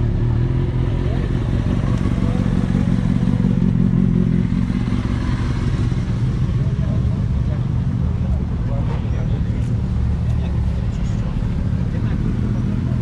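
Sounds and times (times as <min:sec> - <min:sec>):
motorcycle engine at low revs: 0:00.0 - 0:13.0.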